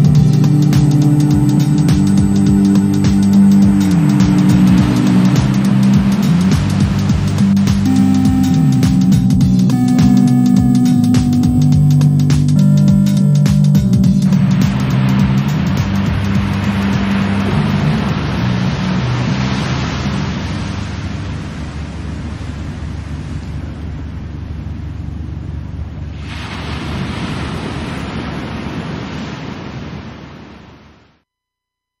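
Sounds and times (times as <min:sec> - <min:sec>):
electronic music: 0:00.0 - 0:20.4
ocean surf washing in: 0:00.0 - 0:25.4, 0:26.0 - 0:31.1.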